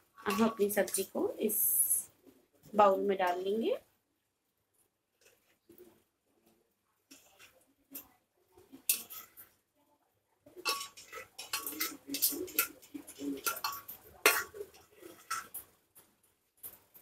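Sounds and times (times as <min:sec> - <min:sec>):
utensil scraping metal pot: 0:00.2 - 0:01.1, 0:07.1 - 0:09.6, 0:10.5 - 0:15.8.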